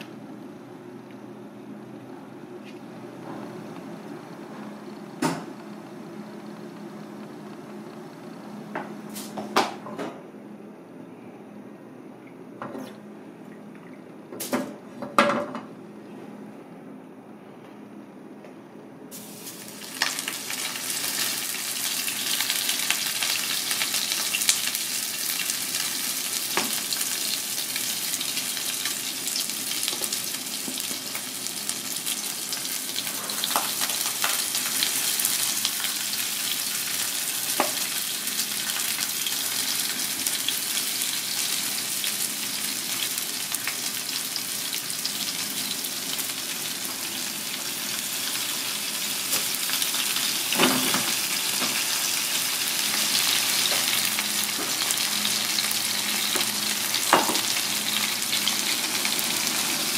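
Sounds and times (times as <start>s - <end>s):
fish frying in a pan sizzling: 19.3s - 59.9s.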